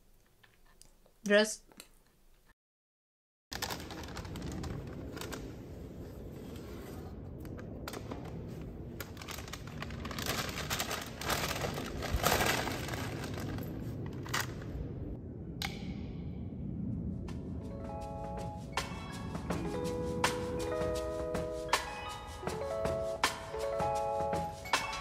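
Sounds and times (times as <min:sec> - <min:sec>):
rustling and crackling: 0:03.5 - 0:14.9.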